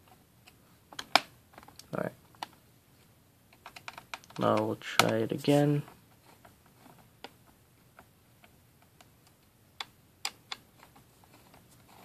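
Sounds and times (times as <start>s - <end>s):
faint plastic clicks and taps: 3.5s - 5.2s.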